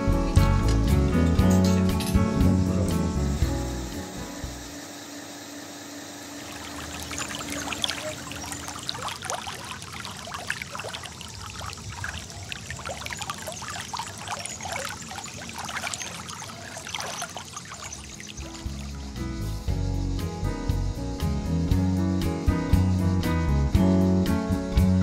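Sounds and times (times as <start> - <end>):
hot tub water churning: 6.3 - 19.2.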